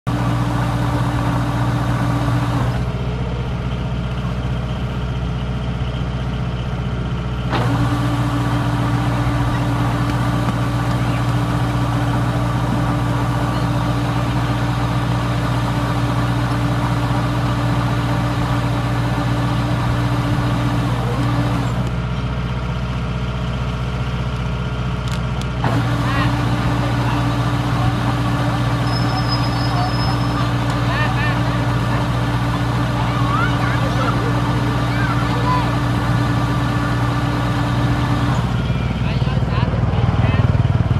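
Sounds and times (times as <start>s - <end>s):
diesel engine running under load: 0.0s - 40.9s.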